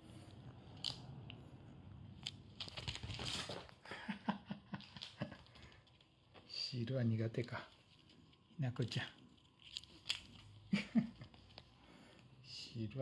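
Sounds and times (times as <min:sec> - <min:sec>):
paper rustling and crinkling: 0:02.5 - 0:03.8.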